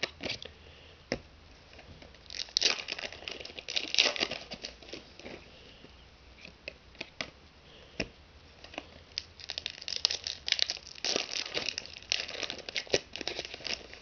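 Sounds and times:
foil wrapper crinkling and tearing: 2.2 - 5.3, 8.7 - 14.0.

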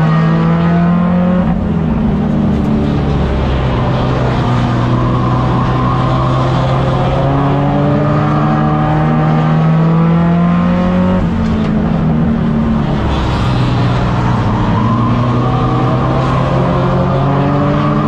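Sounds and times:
other cars' engines: 0.0 - 18.0
race car engine from inside: 0.0 - 18.0.

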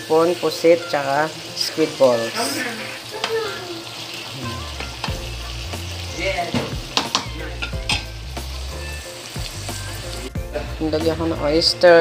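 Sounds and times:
seafood sizzling in a pan: 0.0 - 12.0
utensil knocking against pan: 6.4 - 8.2.

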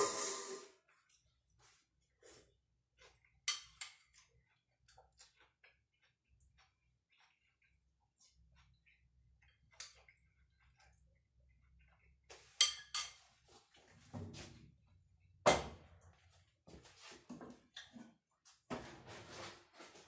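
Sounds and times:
dishes and utensils clattering: 3.4 - 4.2, 12.3 - 14.2
spoon clinking on ceramic bowl: 12.5 - 13.2.

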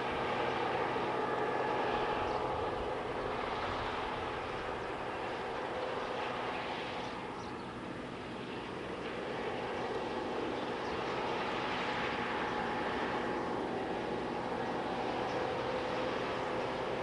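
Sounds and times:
combine harvester engine drone: 0.0 - 17.0
faint steady whine: 0.0 - 17.0.

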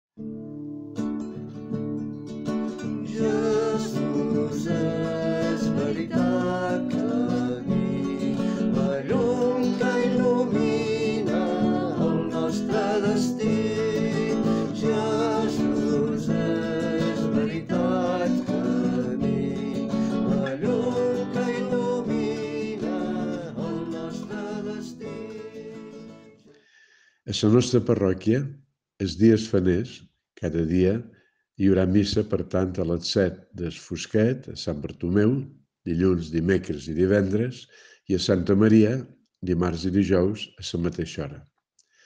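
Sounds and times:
acoustic guitar: 0.2 - 26.6
person singing: 2.9 - 26.4.

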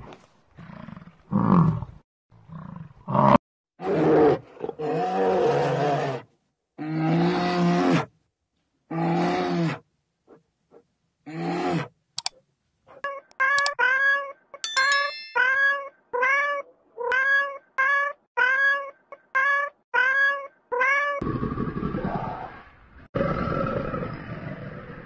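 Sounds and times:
bell-like ding: 14.6 - 15.6
cat meowing: 15.4 - 21.2
deep roar: 21.2 - 25.0
low growl: 21.2 - 25.0.

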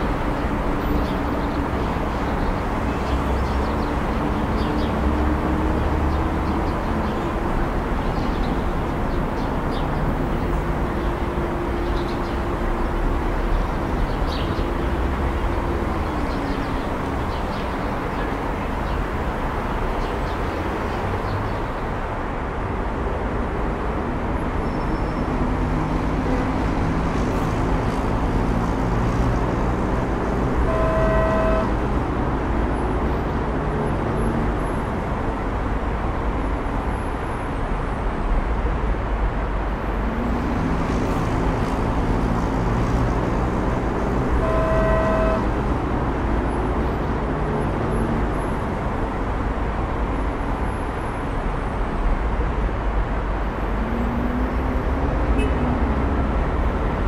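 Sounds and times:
passing cars: 0.0 - 57.0
car horn toot: 30.6 - 31.8, 44.4 - 45.6, 55.4 - 55.7.

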